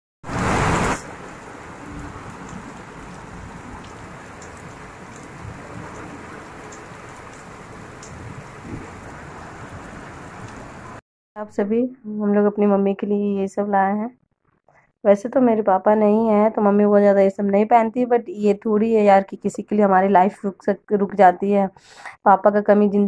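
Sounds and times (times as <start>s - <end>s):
loud burst of noise: 0.2s - 3.1s
heavy rain on a tiled roof: 0.2s - 11.0s.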